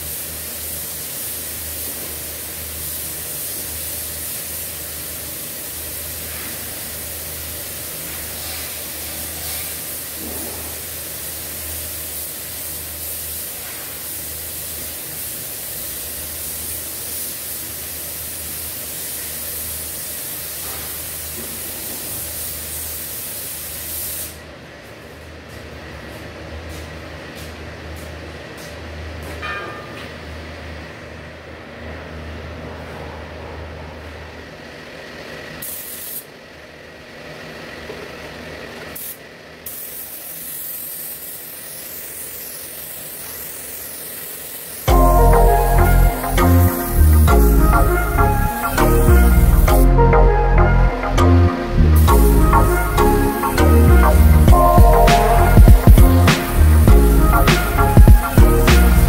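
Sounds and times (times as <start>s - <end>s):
paint spray gun hissing: 0.0s - 24.4s, 35.6s - 36.3s, 38.8s - 49.8s, 51.9s - 59.0s
low hum: 44.9s - 59.0s.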